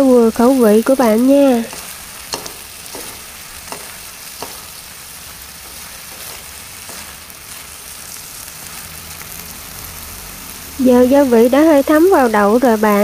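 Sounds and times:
beans sizzling in a wok: 0.0s - 13.0s
utensils clicking against pan: 0.9s - 4.8s.

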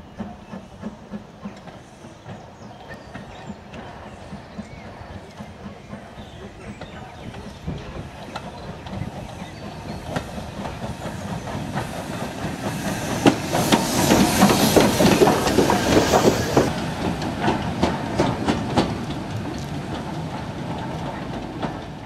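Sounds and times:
train wheels clattering: 0.0s - 22.0s
steam hissing: 8.0s - 17.7s.

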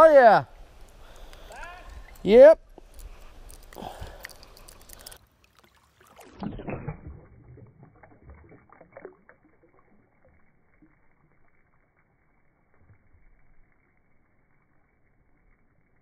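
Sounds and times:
water splashing and sloshing: 0.6s - 12.0s.

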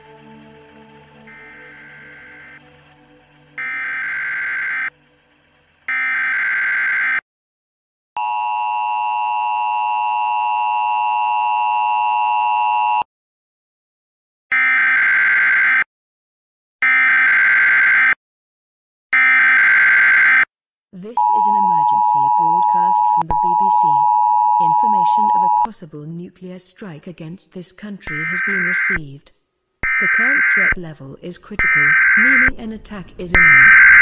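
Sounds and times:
long low steady alert tone: 1.2s - 2.7s, 3.6s - 4.9s, 21.2s - 25.7s
harsh buzzer-like alert beeps: 1.3s - 2.6s, 3.6s - 4.9s, 5.9s - 7.2s, 28.1s - 29.0s, 29.8s - 30.7s.

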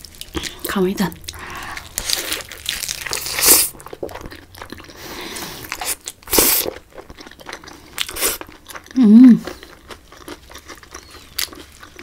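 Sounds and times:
loud crunches of chewing: 1.3s - 12.0s
wet chewing clicks: 5.7s - 12.0s.

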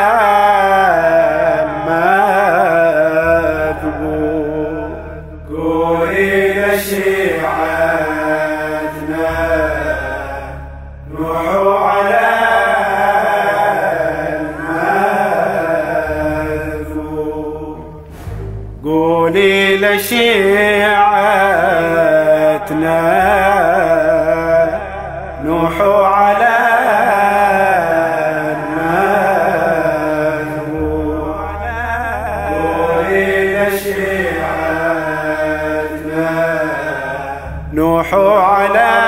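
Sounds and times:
low steady drone: 0.0s - 39.0s
man chanting: 0.0s - 39.0s.

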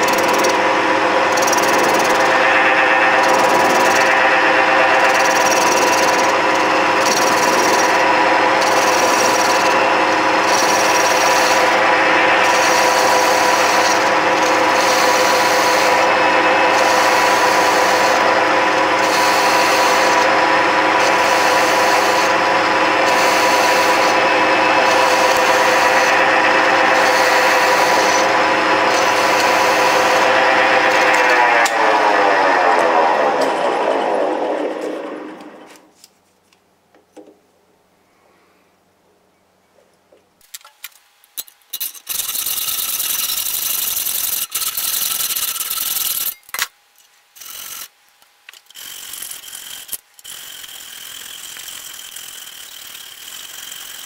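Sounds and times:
lathe machine hum: 0.0s - 35.9s, 48.7s - 54.0s
cutting tool scraping hiss: 47.4s - 47.9s.

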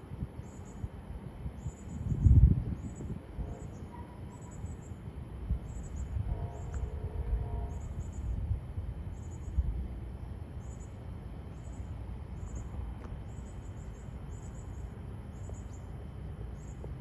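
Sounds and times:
insects chirping: 2.8s - 17.0s.

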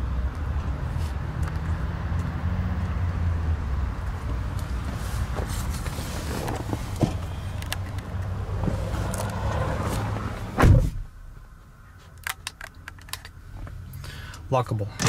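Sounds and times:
outside rumble: 0.0s - 15.0s
car door shutting: 5.4s - 7.9s, 8.5s - 11.2s.

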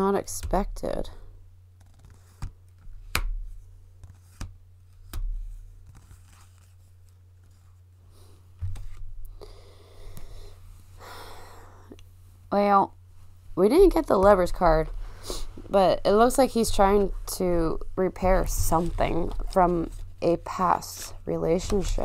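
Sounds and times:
steady low hum: 0.0s - 22.0s
deck of cards rustling: 1.7s - 7.9s, 8.6s - 9.3s, 13.9s - 22.0s.

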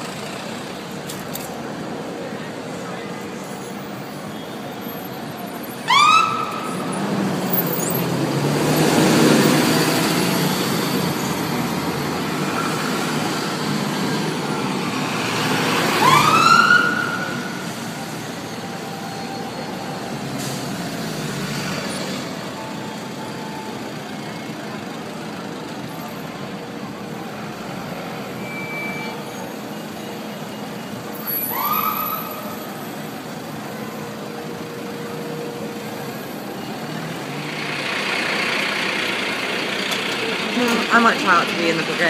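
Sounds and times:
truck engine and tyre noise: 0.0s - 42.0s
fire engine siren whoops: 5.6s - 8.3s, 14.4s - 20.8s, 28.3s - 34.6s.

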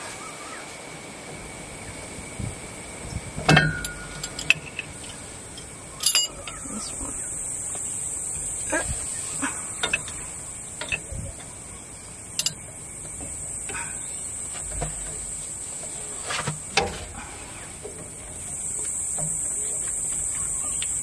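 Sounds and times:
insects droning: 0.0s - 21.0s
spanner clinking on bolts: 3.4s - 7.0s, 9.4s - 11.6s, 12.4s - 14.0s.

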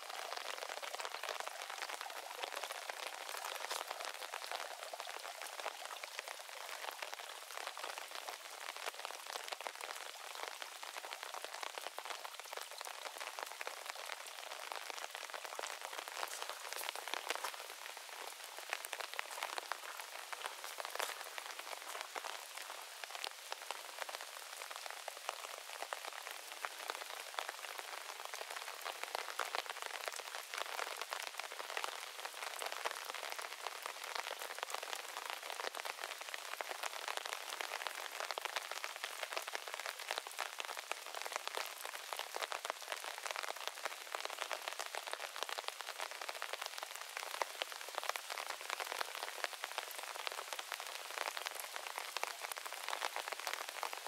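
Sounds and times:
rain falling on plants: 0.0s - 54.0s
raindrop ticks: 0.1s - 23.4s.

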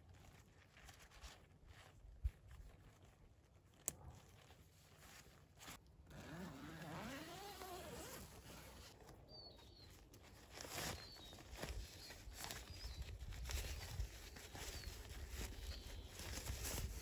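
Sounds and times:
tent fabric rustling: 0.0s - 17.0s
zipper being pulled: 5.6s - 9.0s.

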